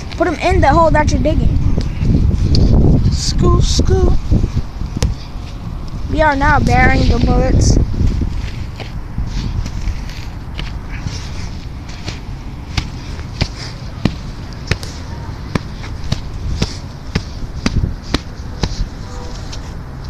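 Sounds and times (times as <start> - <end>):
shovel striking and scraping dirt: 8.4 - 19.7.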